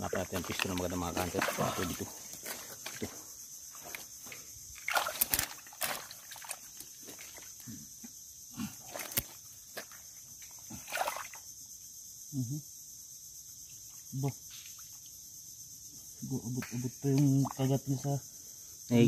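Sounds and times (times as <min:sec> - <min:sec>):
high-pitched insect drone: 0:00.0 - 0:19.0
wet mud squelching: 0:00.3 - 0:03.1, 0:04.8 - 0:07.6.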